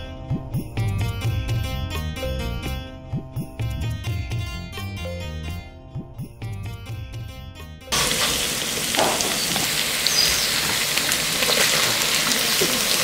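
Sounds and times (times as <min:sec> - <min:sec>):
plucked-string background music: 0:00.0 - 0:08.0
aromatics sizzling in hot oil: 0:07.9 - 0:13.0.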